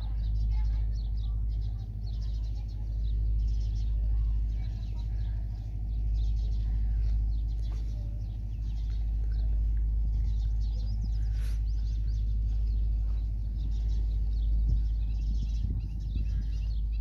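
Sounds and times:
small birds chirping: 0.0s - 17.0s
steady low rumble: 0.0s - 17.0s.

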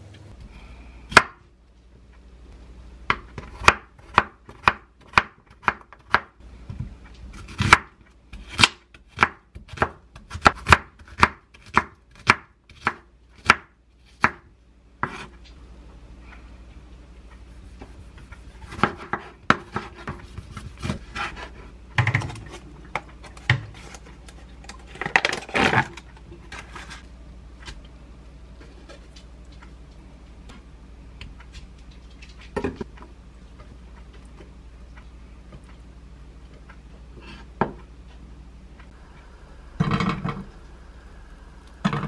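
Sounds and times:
knife scraping board: 15.0s - 15.4s, 17.5s - 21.7s.

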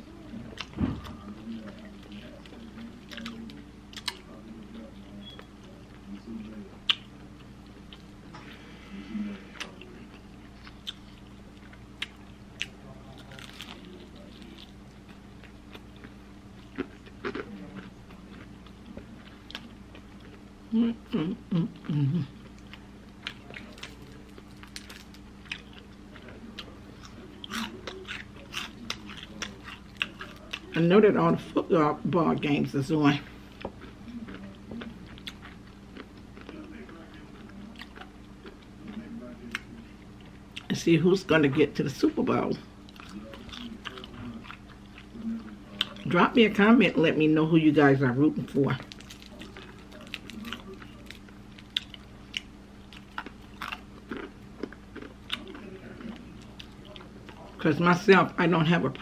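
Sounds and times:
chewing fried chicken: 0.0s - 32.1s, 32.8s - 46.7s, 48.6s - 59.0s
crisp crackles and clicks: 22.5s - 30.7s, 48.8s - 57.6s.

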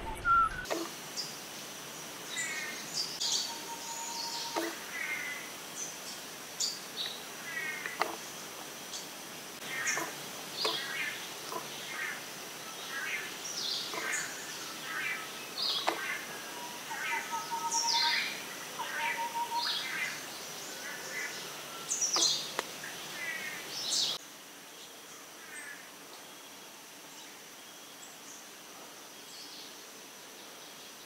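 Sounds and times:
birds chirping and trilling: 0.0s - 1.4s, 2.3s - 24.2s.

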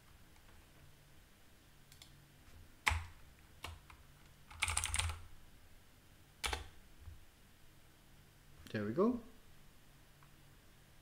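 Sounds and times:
typing on computer keyboard: 2.8s - 5.2s, 6.4s - 6.7s.

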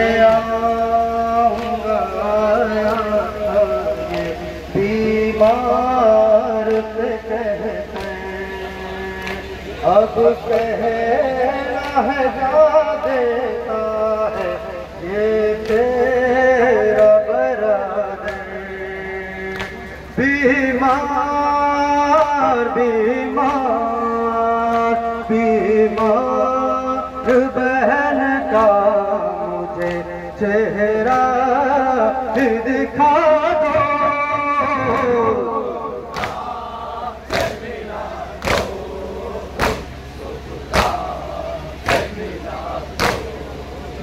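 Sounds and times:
man singing a lament over loudspeaker: 0.0s - 44.0s
hands slapping chests: 36.1s - 36.5s, 38.4s - 38.8s, 39.6s - 39.9s, 40.7s - 41.0s, 43.0s - 43.3s.

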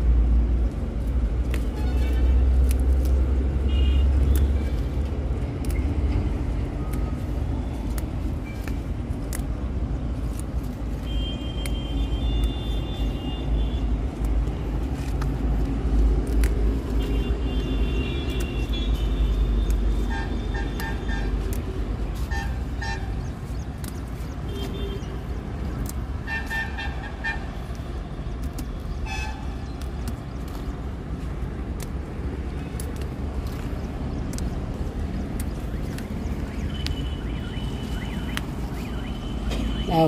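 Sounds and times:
road traffic rumble: 0.0s - 40.0s
vehicle horns beeping: 1.7s - 2.5s, 3.6s - 5.0s, 11.0s - 13.9s, 17.0s - 21.4s, 24.5s - 25.2s, 26.2s - 27.6s.

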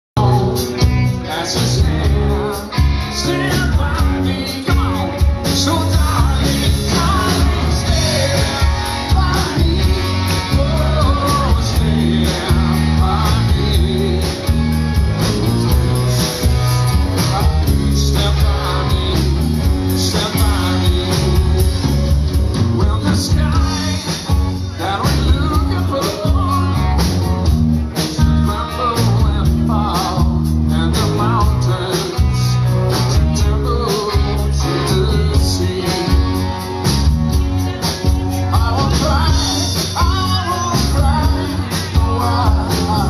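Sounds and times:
man singing into a microphone: 0.2s - 14.9s, 17.1s - 27.2s, 27.8s - 43.0s
electric guitar: 0.2s - 43.0s
live rock band playing: 0.2s - 43.0s.

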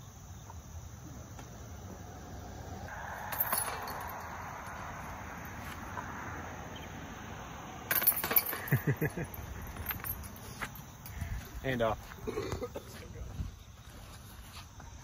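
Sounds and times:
outdoor background noise: 0.0s - 15.0s
metallic jangling and clinking: 3.0s - 5.1s, 7.9s - 11.6s.

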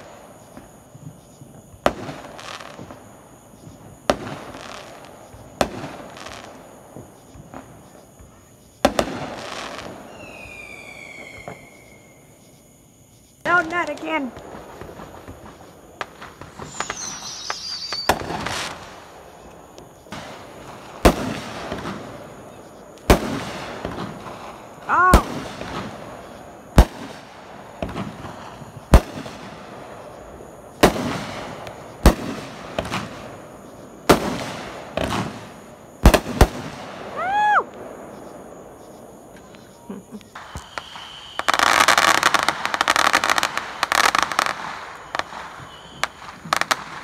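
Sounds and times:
fireworks bangs: 0.0s - 12.6s, 13.4s - 47.0s
falling firework whistle: 8.8s - 12.4s, 14.8s - 20.4s, 36.2s - 47.0s.

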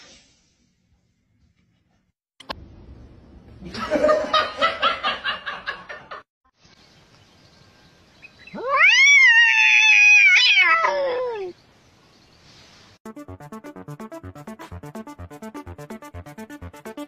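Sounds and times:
cat yowling: 8.5s - 11.6s.

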